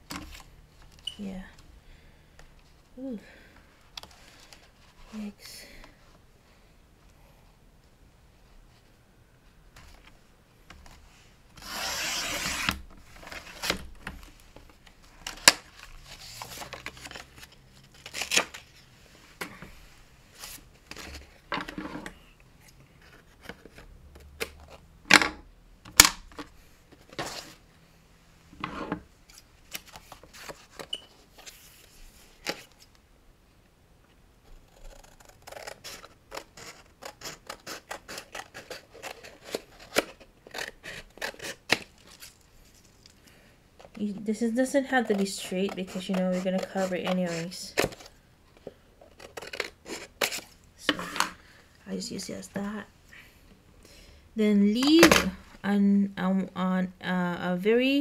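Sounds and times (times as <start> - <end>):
scissors snipping paper: 34.7 - 41.8, 44.9 - 48.0.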